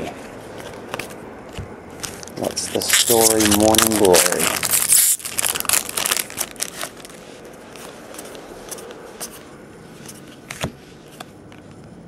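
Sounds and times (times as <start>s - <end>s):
cards rustling and ticking: 0.5s - 11.3s
foil wrapper crinkling: 2.0s - 8.3s.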